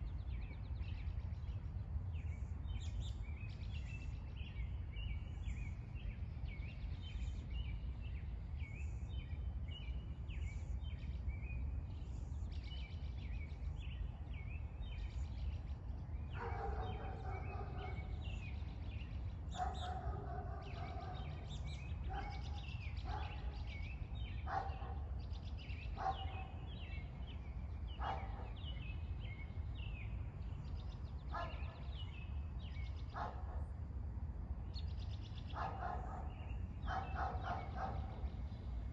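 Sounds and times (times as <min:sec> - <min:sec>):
small birds chirping: 0:00.0 - 0:38.9
dog barking: 0:16.4 - 0:18.1, 0:19.5 - 0:21.4, 0:22.1 - 0:23.5, 0:24.4 - 0:25.0, 0:26.0 - 0:26.6, 0:28.0 - 0:28.6, 0:31.3 - 0:31.9, 0:33.2 - 0:33.6, 0:35.5 - 0:36.3, 0:36.9 - 0:38.2.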